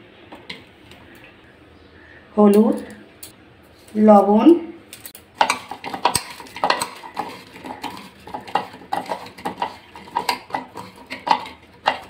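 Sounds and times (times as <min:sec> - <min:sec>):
gourd scraping against bowl: 0:05.4 - 0:12.0.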